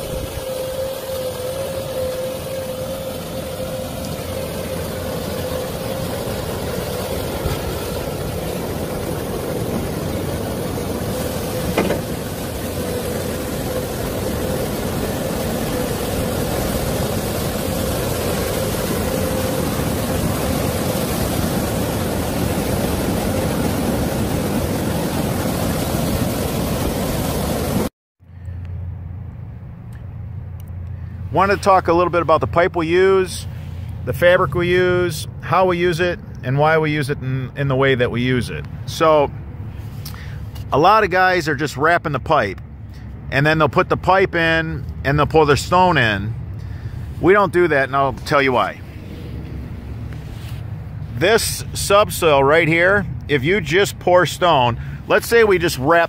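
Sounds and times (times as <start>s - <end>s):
excavator diesel engine running: 0.0s - 27.9s
steady whining tone: 0.0s - 35.4s, 44.4s - 56.0s.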